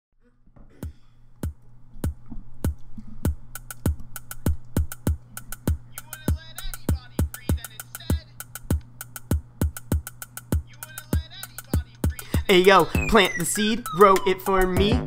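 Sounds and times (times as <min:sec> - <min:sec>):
deep kick drum: 0:04.8 - 0:13.3, 0:14.1 - 0:15.0
warbling high synth line: 0:12.7 - 0:15.0.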